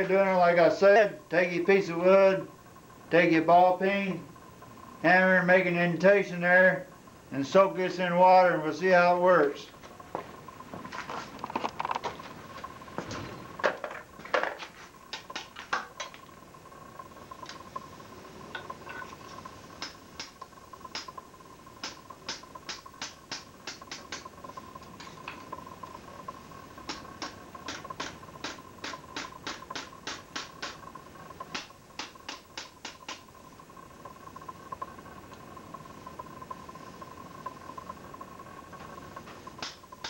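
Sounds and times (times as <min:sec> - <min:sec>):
faint whine: 0:00.0 - 0:40.0
wet wood steaming and crackling: 0:08.8 - 0:40.0.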